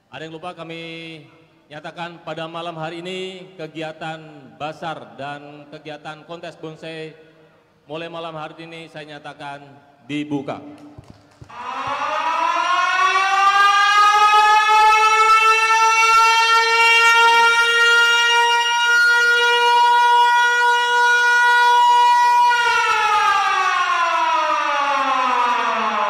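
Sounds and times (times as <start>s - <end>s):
siren wailing: 11.5s - 26.0s.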